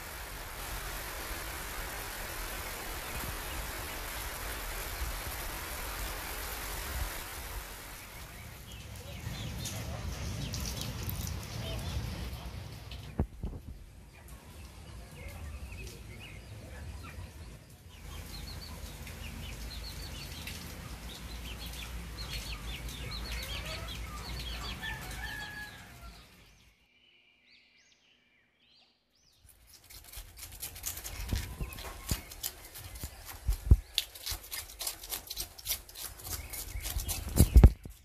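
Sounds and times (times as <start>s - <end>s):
chickens clucking: 9.0s - 26.1s
knife scraping fish scales: 29.5s - 37.6s.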